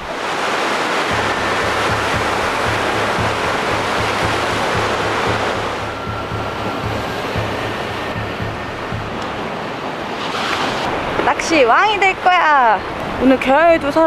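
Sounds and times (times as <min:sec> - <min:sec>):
music with low repeating beat: 0:01.1 - 0:09.9.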